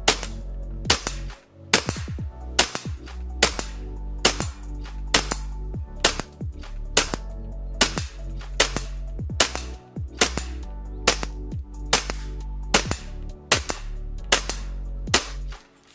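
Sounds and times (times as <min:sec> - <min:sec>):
airsoft pistol shots: 0:00.0 - 0:06.4, 0:07.0 - 0:07.2, 0:07.8 - 0:15.6.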